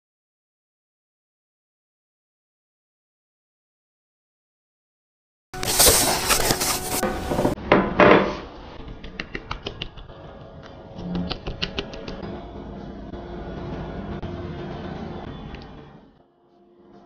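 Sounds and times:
packing tape and cardboard tearing: 5.6 - 7.6.

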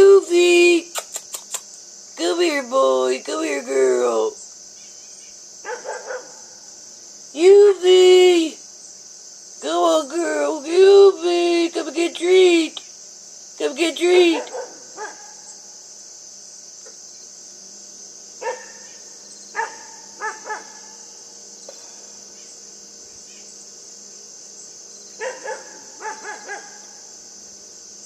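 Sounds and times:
insects chirring: 0.0 - 28.0
puppy barking: 5.7 - 6.5, 14.3 - 15.4, 18.4 - 18.9, 19.6 - 20.9, 25.2 - 26.9.

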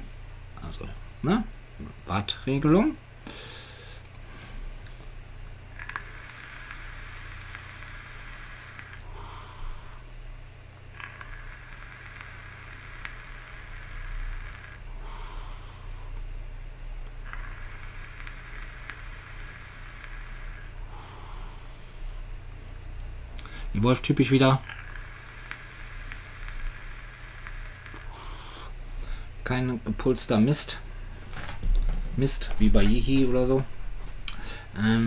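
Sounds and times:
vape hiss and coil sizzle: 5.7 - 10.0, 10.8 - 16.1, 17.0 - 22.2, 23.8 - 28.8.

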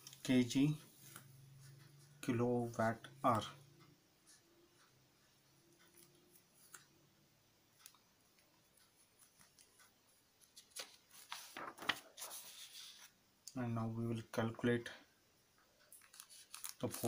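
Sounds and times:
paper sheet rustling: 10.5 - 13.1, 16.0 - 17.0.

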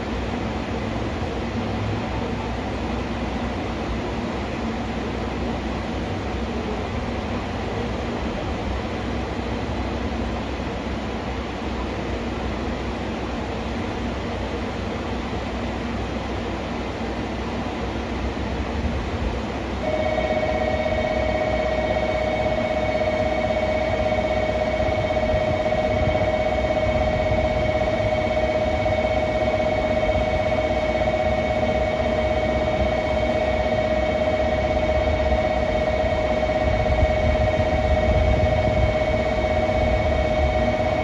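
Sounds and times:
electronic platform bell ringing: 19.8 - 41.0
low hum: 19.8 - 41.0.

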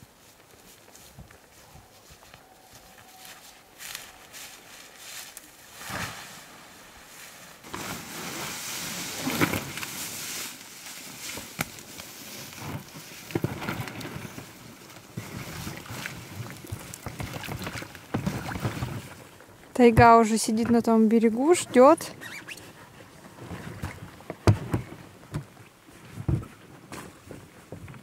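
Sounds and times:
footsteps in dry grass: 0.0 - 13.6
inflatable boat scraping and bumping: 5.7 - 28.0.

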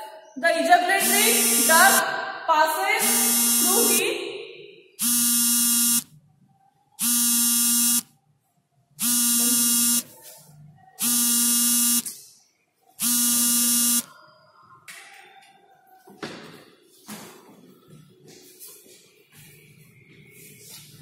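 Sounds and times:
electronic buzzer beeping: 1.0 - 2.0, 3.0 - 4.0, 5.0 - 6.1, 7.0 - 8.1, 9.0 - 10.1, 11.0 - 12.1, 13.0 - 14.1.

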